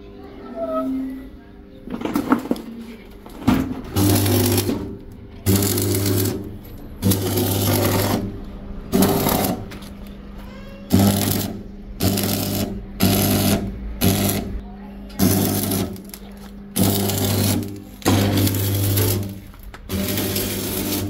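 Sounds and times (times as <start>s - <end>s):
crackling welding arc: 4.0s - 10.0s, 10.9s - 14.6s, 15.2s - 21.0s.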